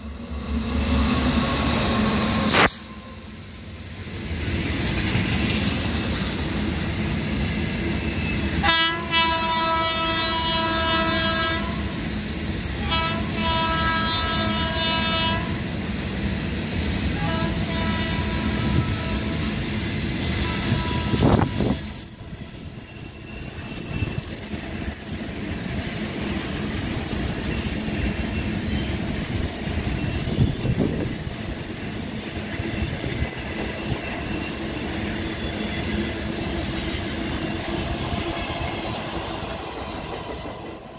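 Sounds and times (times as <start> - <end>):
locomotive horn blasts: 8.6 - 11.9, 12.8 - 15.6, 17.2 - 19.4, 20.4 - 21.5.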